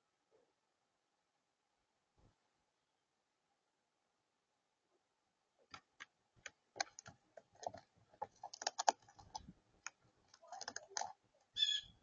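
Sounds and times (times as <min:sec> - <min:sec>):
bird claws tapping on plastic: 0:05.7 - 0:11.2.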